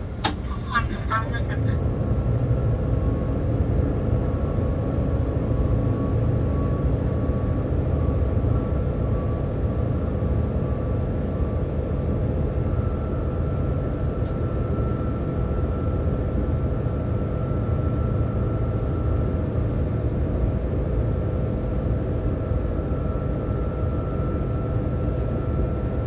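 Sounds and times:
train running on rails: 0.0s - 15.5s
faint whining tones: 0.0s - 26.0s
locomotive engine drone: 0.0s - 26.0s.

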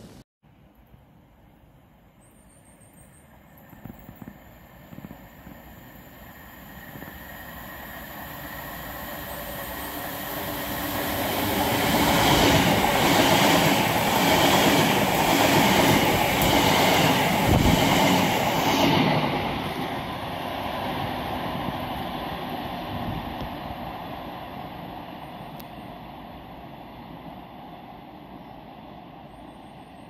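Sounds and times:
wheels clattering on rails: 3.5s - 5.8s
passenger train rushing past: 3.5s - 30.0s.

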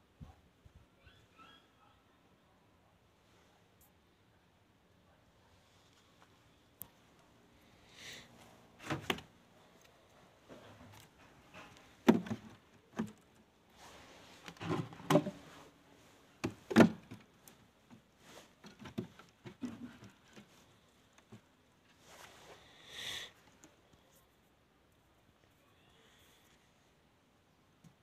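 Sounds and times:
wooden boxes knocking: 12.0s - 13.2s, 14.6s - 15.4s, 16.4s - 17.3s.

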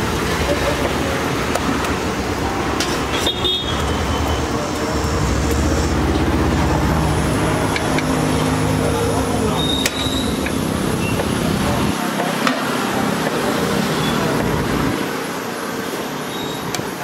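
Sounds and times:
vehicle engine running: 0.0s - 15.1s
street traffic: 0.0s - 17.0s
horn toot: 2.4s - 6.0s.

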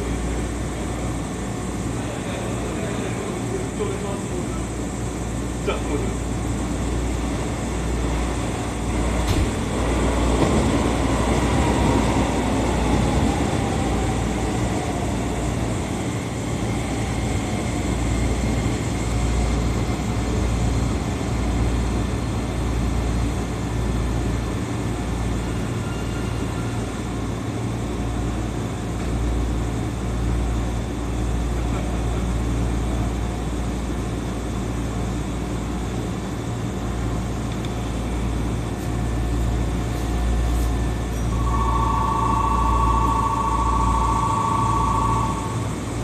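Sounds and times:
electric train passing: 6.0s - 20.4s, 39.1s - 46.0s
low cab hum: 41.1s - 46.0s.

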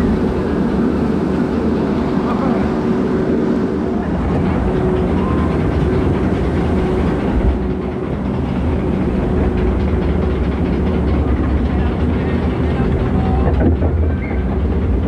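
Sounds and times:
conveyor mechanical rumble: 0.0s - 15.0s
faint hum: 0.0s - 15.0s.

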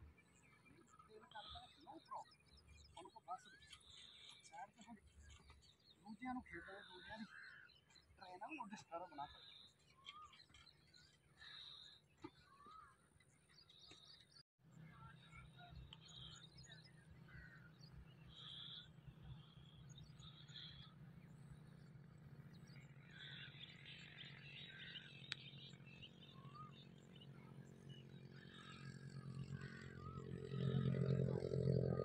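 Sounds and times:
faint birds chirping: 0.0s - 32.0s.

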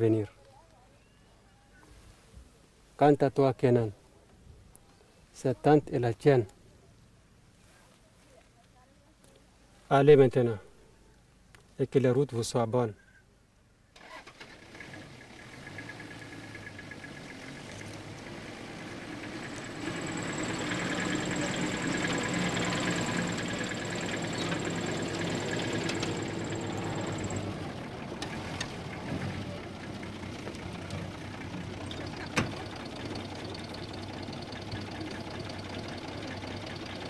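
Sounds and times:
vehicle engine idling: 14.1s - 37.0s.

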